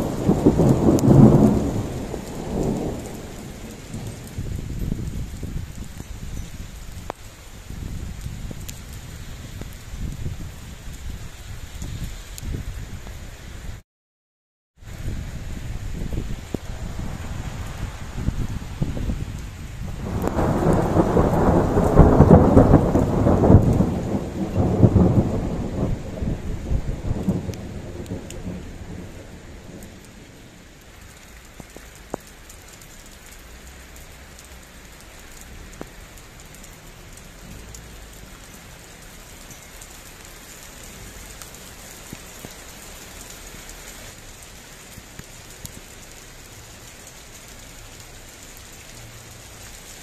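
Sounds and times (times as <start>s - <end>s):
thunder rolling: 0.0s - 5.8s, 14.9s - 30.6s
raindrops ticking close by: 0.0s - 13.8s, 14.8s - 50.0s
steady rain: 0.0s - 13.8s, 14.8s - 50.0s.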